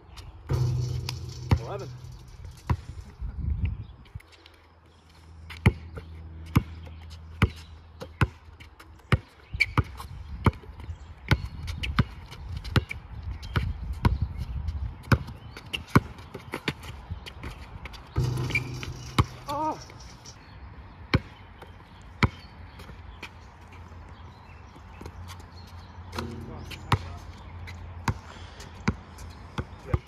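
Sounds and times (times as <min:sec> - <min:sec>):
basketball bouncing on court: 0:00.5 - 0:02.9, 0:05.5 - 0:08.4, 0:15.0 - 0:16.9, 0:18.2 - 0:19.7, 0:22.2 - 0:22.4, 0:26.1 - 0:30.0.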